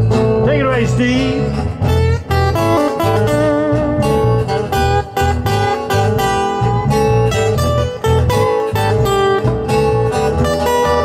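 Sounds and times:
electric bass: 0:00.0 - 0:11.0
lead acoustic guitar picking: 0:00.0 - 0:11.0
strummed acoustic guitar: 0:00.0 - 0:11.0.

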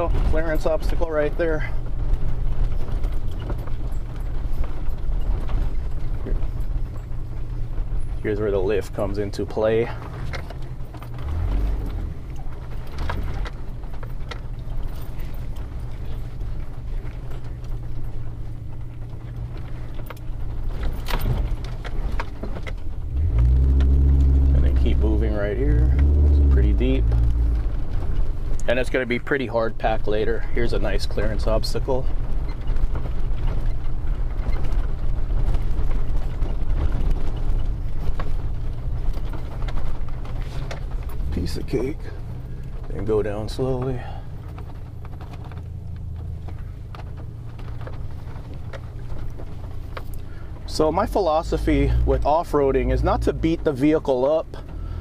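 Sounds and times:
body and suspension rattles: 0:00.0 - 0:55.0
van engine and tyre rumble: 0:00.0 - 0:55.0
sharp knocks over bumps: 0:08.9 - 0:29.0, 0:31.2 - 0:55.0.

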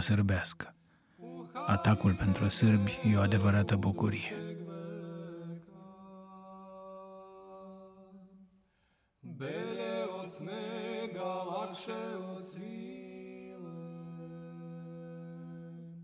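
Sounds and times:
men chanting a melodic line: 0:01.2 - 0:08.1
men chanting a low drone: 0:01.2 - 0:08.4.

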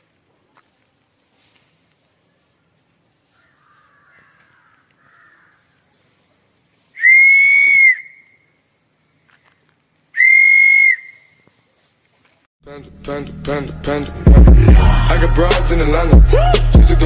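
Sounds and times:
wooden train whistle blasts: 0:07.0 - 0:08.3, 0:10.2 - 0:11.3.

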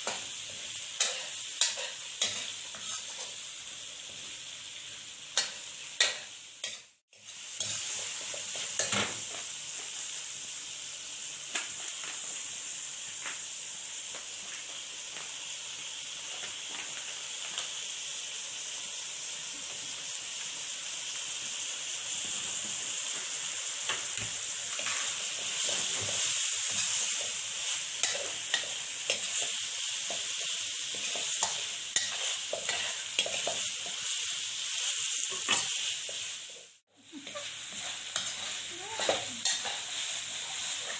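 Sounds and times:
meat sizzling in a wok: 0:00.0 - 0:40.9
metal spatula scraping pan: 0:01.0 - 0:03.3, 0:37.2 - 0:40.9.

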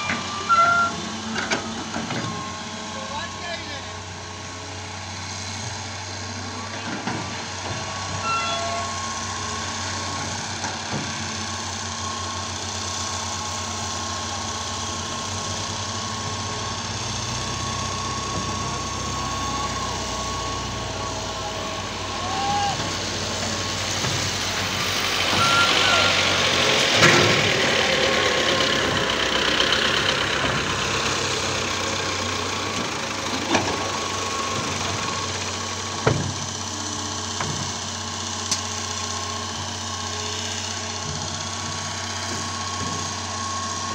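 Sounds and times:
excavator diesel engine running: 0:00.0 - 0:43.9
thin high tone: 0:08.2 - 0:09.3, 0:25.3 - 0:26.3.

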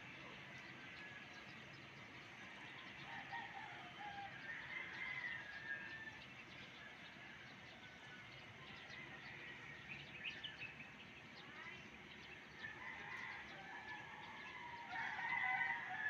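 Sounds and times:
rooster crowing: 0:03.0 - 0:06.2, 0:12.6 - 0:16.0.

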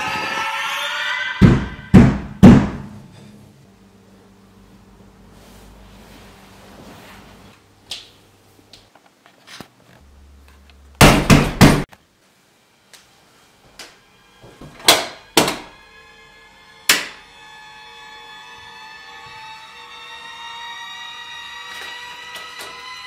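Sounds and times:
knocking on a door: 0:01.4 - 0:02.9
music: 0:13.7 - 0:16.5.

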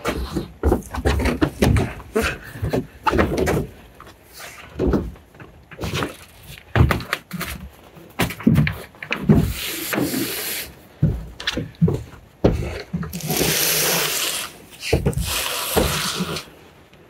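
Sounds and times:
kayak scraping slide: 0:09.4 - 0:10.8, 0:13.2 - 0:16.6.

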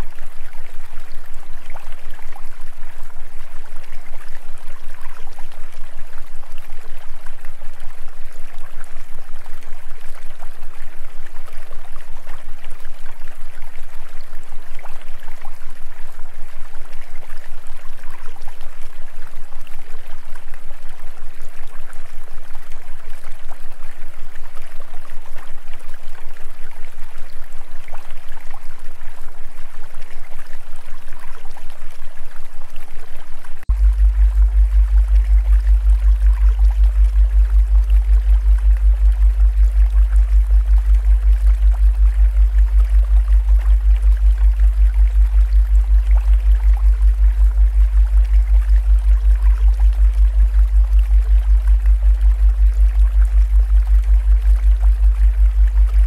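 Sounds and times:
low hum: 0:33.6 - 0:56.0.

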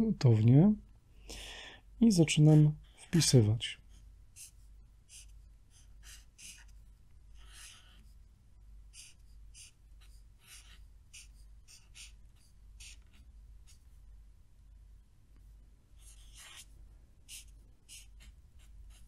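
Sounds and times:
marker scratching on paper: 0:03.9 - 0:08.3, 0:08.9 - 0:14.0, 0:16.0 - 0:19.0.

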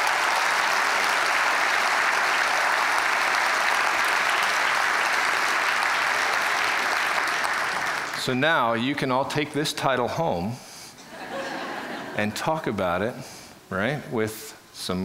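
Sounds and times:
audience applause: 0:00.0 - 0:08.3.

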